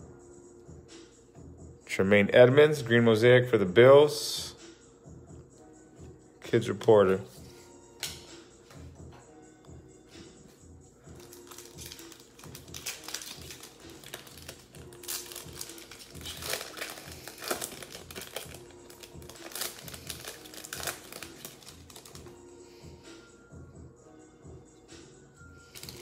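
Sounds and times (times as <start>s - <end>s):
faint background music: 0.0s - 26.0s
card pack wrappers crinkling: 11.2s - 22.3s, 25.7s - 26.0s.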